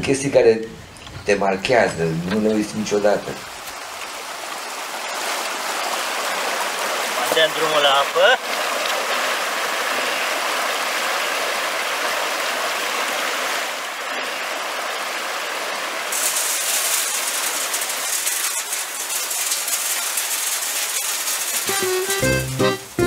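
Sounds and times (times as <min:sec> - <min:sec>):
water rushing through chute: 0:01.2 - 0:23.0
grain trickling onto millstone: 0:16.1 - 0:23.0.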